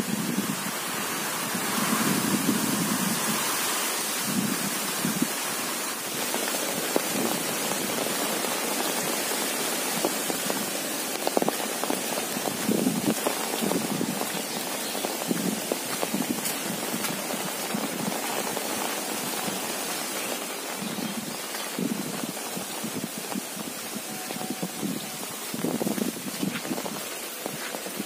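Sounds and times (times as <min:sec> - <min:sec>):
rain pattering on umbrella: 0:00.0 - 0:28.0
footsteps on wet dirt path: 0:04.2 - 0:28.0.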